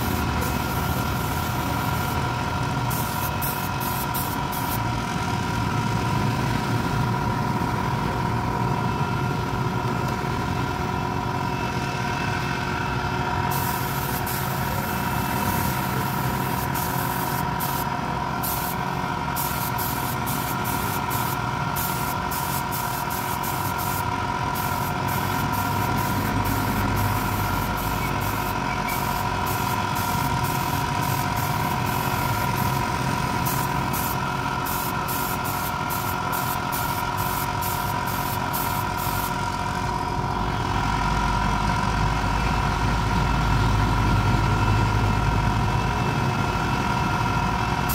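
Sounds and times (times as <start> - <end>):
spray gun hissing: 0.0 - 2.2, 2.8 - 4.8, 13.5 - 32.8, 33.4 - 39.3
air compressor humming: 0.0 - 11.6, 12.4 - 40.3.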